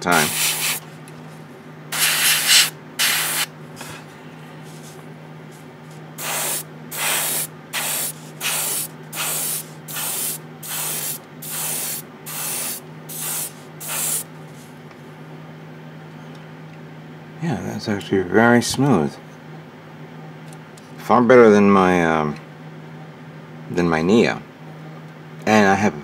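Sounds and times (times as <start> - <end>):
airbrush hissing bursts: 0.0 - 0.8, 1.9 - 3.5, 6.2 - 14.3
steady low hum: 0.0 - 26.0.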